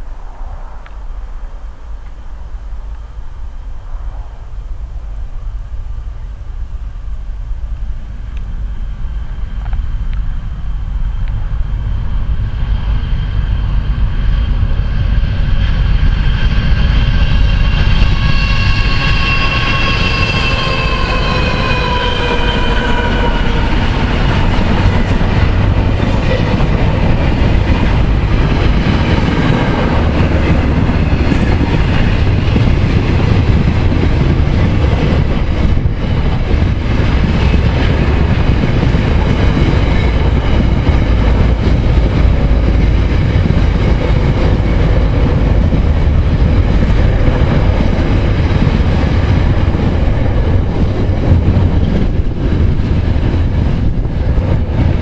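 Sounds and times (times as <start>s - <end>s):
train wheels rumbling on rail: 0.0s - 55.0s
wheel squeal: 14.4s - 24.0s.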